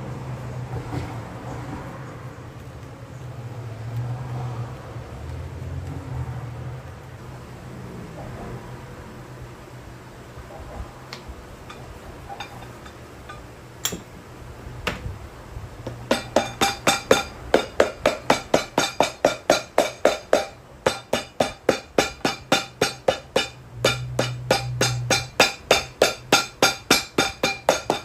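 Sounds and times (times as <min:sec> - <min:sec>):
hammer tapping on boot sole: 0:15.9 - 0:28.0.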